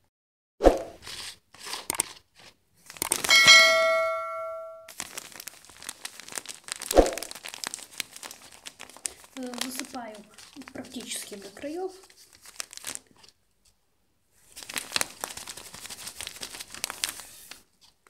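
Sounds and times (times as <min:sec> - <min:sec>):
plastic bag crinkling: 0:02.8 - 0:03.6, 0:04.9 - 0:13.4, 0:14.4 - 0:18.0
bell-like ding: 0:03.3 - 0:04.9.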